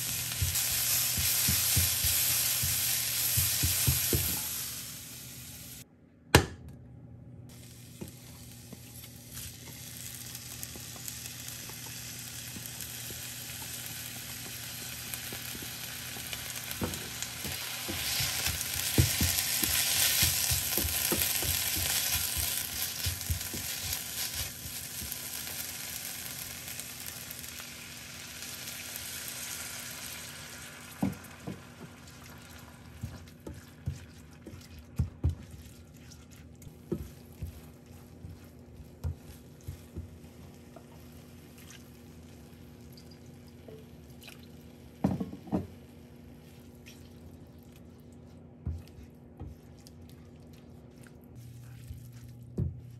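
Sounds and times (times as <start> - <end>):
food sizzling in a pan: 0.0 - 5.8, 7.5 - 34.0
utensil tapping and scraping: 16.8 - 25.1.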